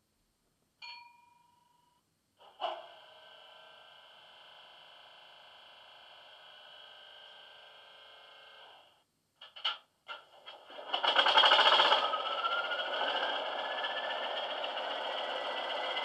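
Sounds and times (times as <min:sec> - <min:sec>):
diesel locomotive hum from small speaker: 0:11.6 - 0:16.0.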